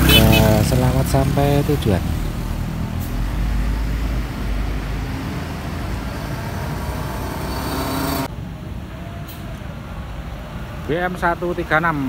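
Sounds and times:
bus engine rumble: 0:00.0 - 0:12.0
road noise: 0:00.0 - 0:12.0.

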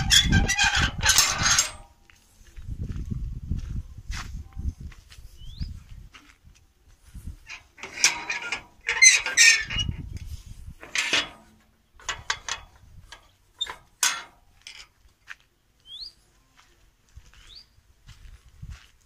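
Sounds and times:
footsteps on gravel: 0:01.9 - 0:07.4, 0:14.9 - 0:19.0.

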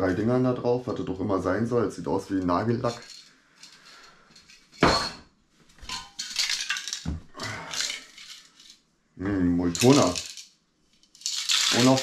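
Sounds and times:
metal cans clinking: 0:02.8 - 0:05.2, 0:05.8 - 0:08.8, 0:09.7 - 0:10.5, 0:11.1 - 0:12.0.

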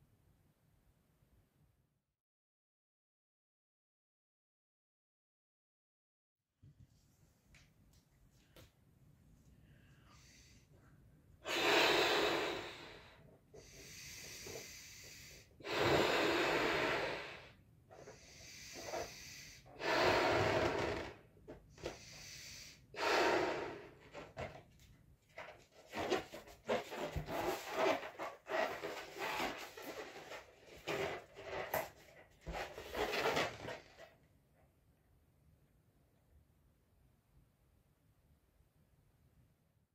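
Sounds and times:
in-breaths: 0:09.5 - 0:24.5
breath puffs into balloon: 0:11.4 - 0:24.4, 0:25.9 - 0:31.7.

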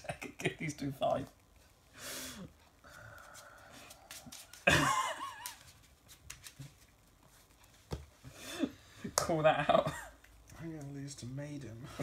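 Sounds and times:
playing cards rustling: 0:03.2 - 0:07.1.

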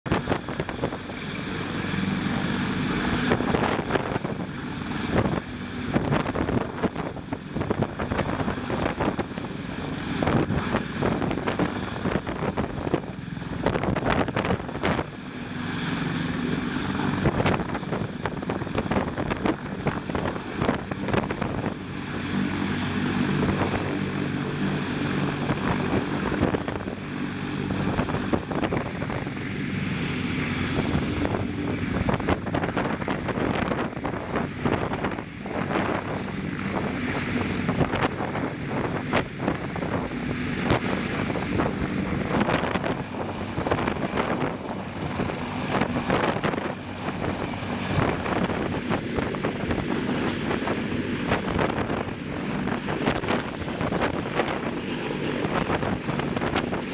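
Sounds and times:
helicopter hovering: 0:00.0 - 0:56.9.

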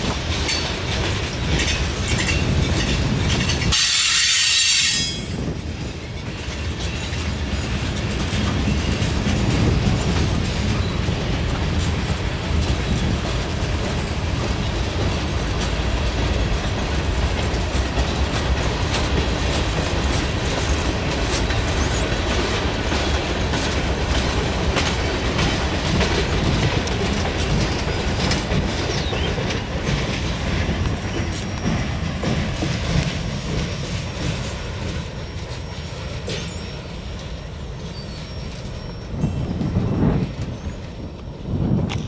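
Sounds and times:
train wheels rumbling on rails: 0:00.0 - 0:42.0
wheels clicking over track: 0:05.4 - 0:37.3.

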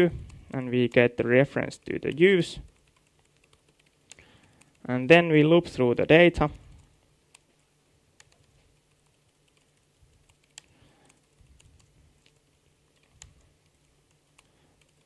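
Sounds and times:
faint low hum: 0:00.0 - 0:15.0
computer keyboard keystrokes: 0:01.8 - 0:04.9, 0:08.2 - 0:15.0.

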